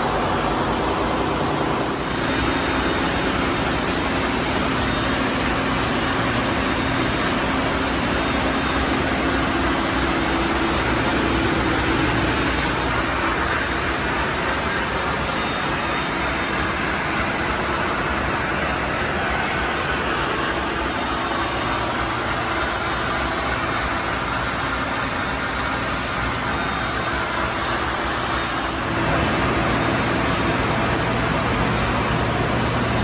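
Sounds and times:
engine room machinery din: 0.0s - 33.0s.

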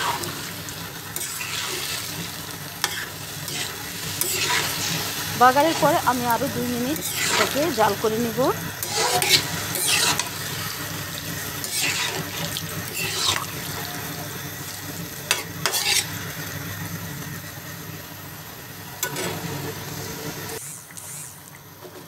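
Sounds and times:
food bubbling and sizzling in oil: 0.0s - 22.0s
metal spatula scraping pan: 1.2s - 2.2s, 2.8s - 8.2s, 8.8s - 10.7s, 11.6s - 13.8s, 15.3s - 16.2s.

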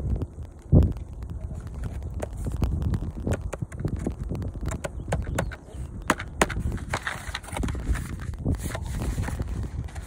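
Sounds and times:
wind rumble on microphone: 0.0s - 10.0s
hands handling cardboard box: 4.8s - 10.0s.

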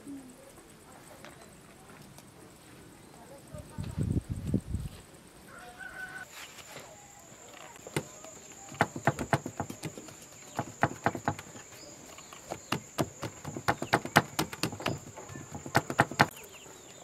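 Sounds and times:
high insect trill: 0.0s - 17.0s
hands patting dough on board: 7.9s - 11.6s, 12.5s - 16.3s.

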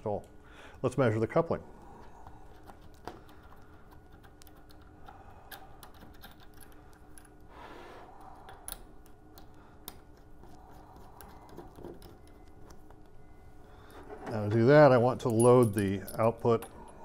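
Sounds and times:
cable connectors clicking and tapping: 2.2s - 7.4s.

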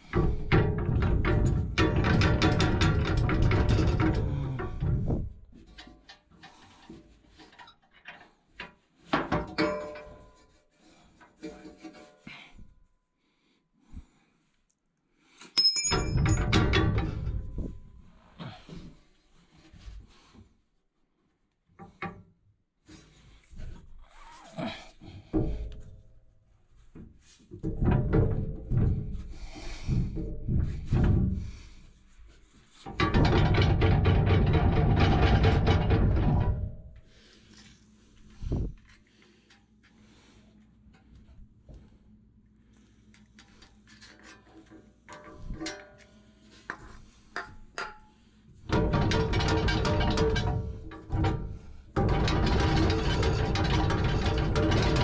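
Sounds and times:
metal knocks and scrapes: 0.0s - 12.3s, 15.8s - 19.0s, 25.1s - 39.3s, 43.4s - 55.0s.

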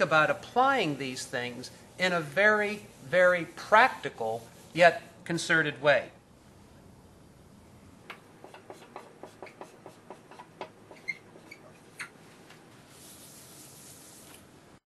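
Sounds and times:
whiteboard being wiped: 0.0s - 5.2s, 8.4s - 14.5s
marker tapping and squeaking on whiteboard: 8.0s - 12.2s.

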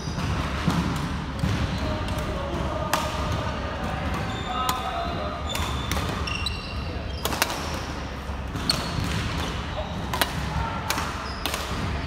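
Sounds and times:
rackets striking shuttlecock: 0.2s - 6.4s, 7.2s - 7.9s, 8.5s - 11.9s
shoes squeaking on court floor: 3.9s - 10.3s, 11.0s - 11.8s.

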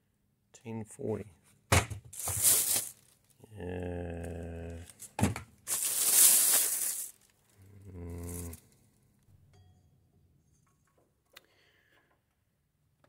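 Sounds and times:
plastic bag rustling: 2.1s - 3.4s, 4.8s - 7.6s
man humming: 3.4s - 5.0s, 7.6s - 8.8s.

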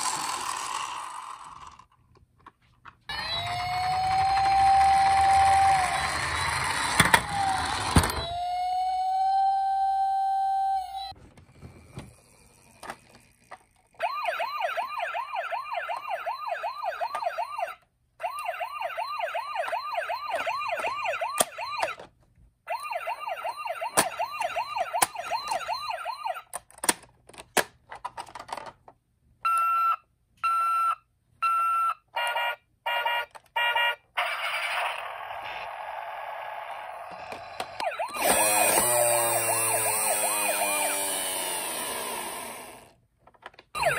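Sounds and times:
toy siren warbling: 3.1s - 11.2s, 14.0s - 22.0s, 22.7s - 26.5s, 31.5s - 42.9s.

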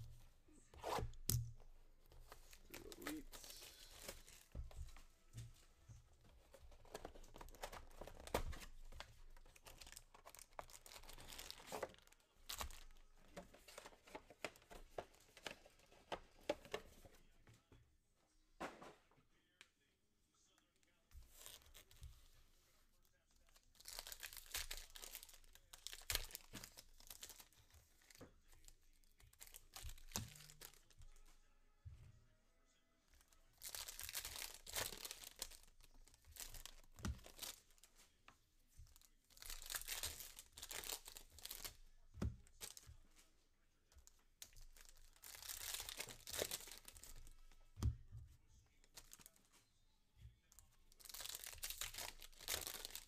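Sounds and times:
foil wrappers tearing and crinkling: 6.8s - 13.0s, 23.6s - 28.2s, 33.5s - 37.8s, 39.4s - 41.8s, 44.6s - 47.4s, 50.9s - 53.0s.

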